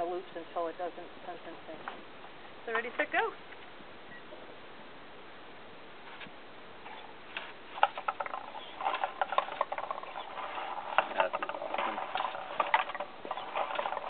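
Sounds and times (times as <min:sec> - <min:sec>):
marble sorting machine clicking: 0:07.8 - 0:14.0
marbles clattering into cups: 0:07.8 - 0:14.0.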